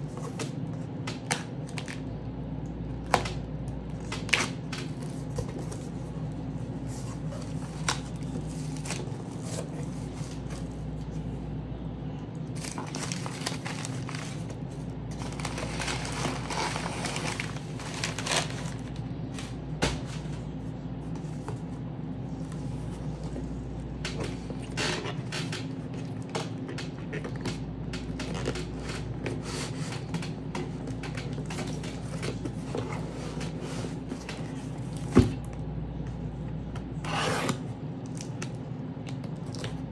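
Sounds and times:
steady low hum: 0.0s - 39.9s
packaging rustling and crinkling: 12.5s - 19.6s.

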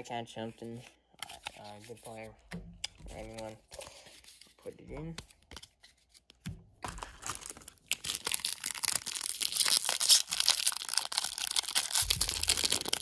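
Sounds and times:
foil wrapper crinkling and tearing: 6.9s - 13.0s.

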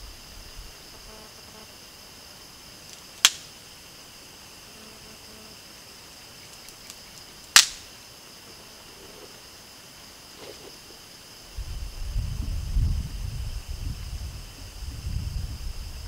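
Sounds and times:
insects chirring: 0.0s - 16.0s
sharp cracks: 2.9s - 3.6s, 6.4s - 8.0s.

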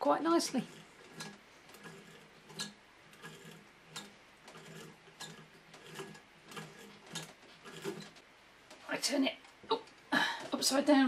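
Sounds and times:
hand-turned sewing machine clicking: 0.0s - 8.2s.

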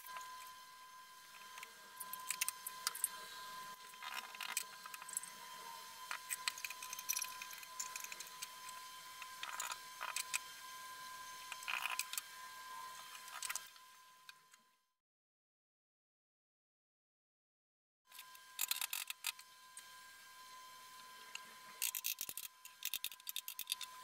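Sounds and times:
steady high tone: 0.0s - 14.2s.

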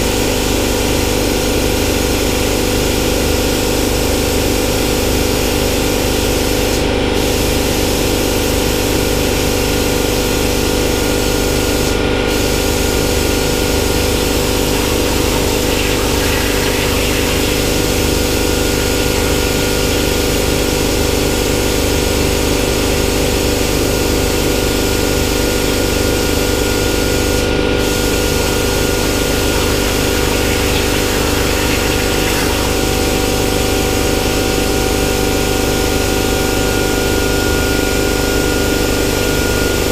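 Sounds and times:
steady hum: 9.8s - 21.6s, 24.2s - 39.9s
plasma cutter hissing: 10.6s - 20.9s, 25.7s - 35.8s.

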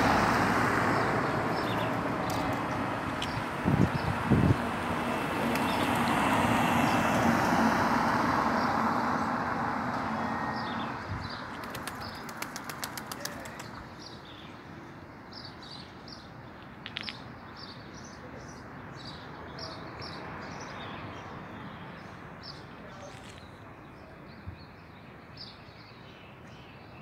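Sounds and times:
vehicle passing: 0.0s - 13.8s
pigeon wings clapping: 11.5s - 13.8s.

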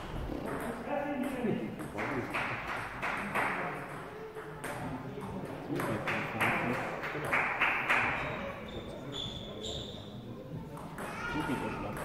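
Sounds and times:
table tennis ball bouncing: 0.4s - 8.4s.

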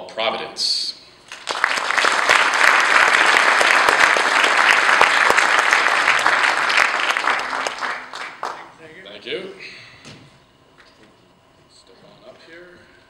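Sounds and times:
audience applauding: 1.3s - 8.8s.

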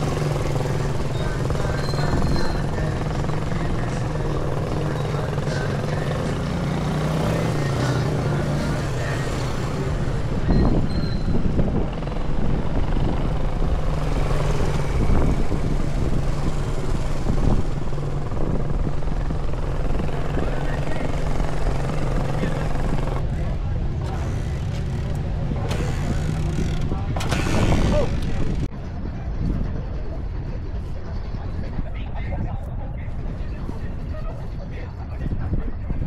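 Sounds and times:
motorcycle engines humming: 0.0s - 28.7s.

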